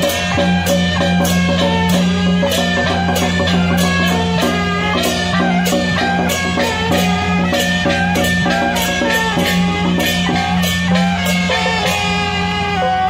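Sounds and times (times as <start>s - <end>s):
hand cymbals: 0.0s - 13.0s
large gong struck: 0.0s - 13.0s
sliding melody over low drone: 0.0s - 13.0s.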